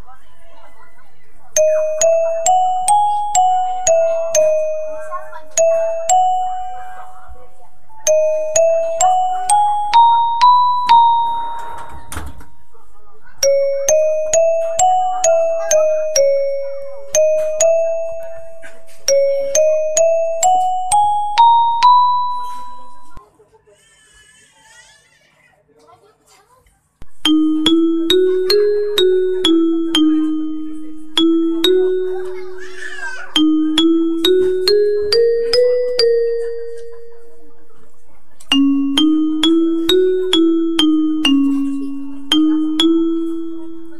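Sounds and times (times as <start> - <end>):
station chime melody: 8.1 - 12.4, 13.4 - 23.2, 27.2 - 37.7, 38.5 - 43.9.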